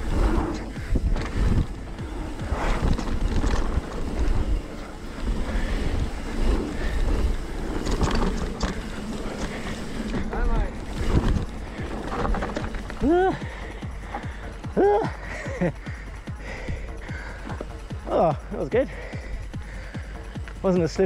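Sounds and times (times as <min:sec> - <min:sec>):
wind buffeting microphone: 0:00.0 - 0:14.4
tyres rolling on dirt: 0:00.0 - 0:19.6
bike knocking and rattling: 0:00.0 - 0:21.0.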